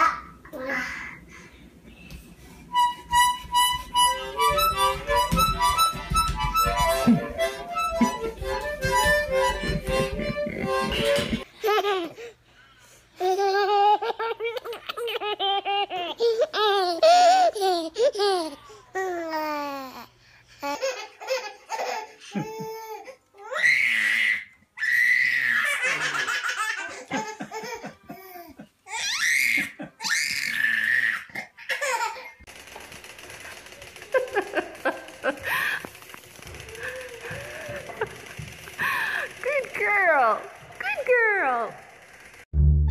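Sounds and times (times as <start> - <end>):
babies laughing and squealing: 20.6 - 32.5.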